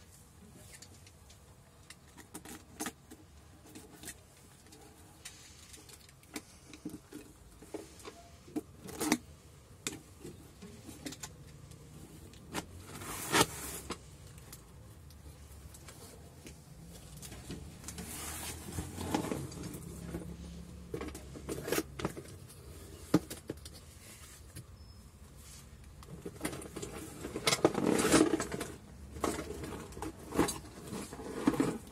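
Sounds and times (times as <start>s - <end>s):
cardboard scraping: 12.4s - 14.1s, 17.3s - 23.1s, 25.4s - 31.9s.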